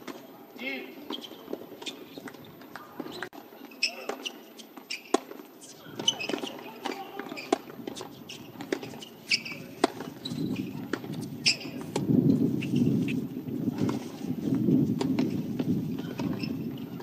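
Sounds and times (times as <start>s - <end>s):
crowd noise: 0.0s - 17.0s
shoes squeaking on court: 0.0s - 17.0s
tennis ball struck and bouncing: 6.0s - 10.1s, 15.0s - 15.4s.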